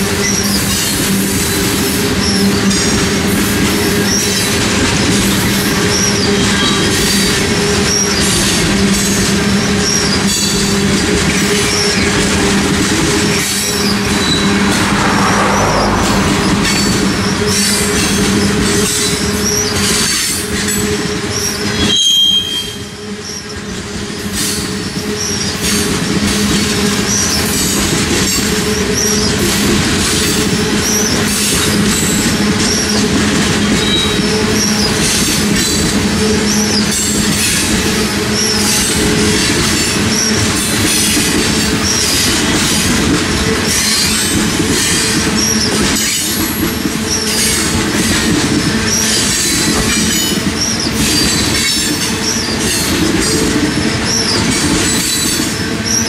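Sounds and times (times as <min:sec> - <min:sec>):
steel wheels rumbling on rail: 0:00.0 - 0:56.0
high-pitched wheel squeal: 0:05.3 - 0:20.5, 0:21.3 - 0:23.5.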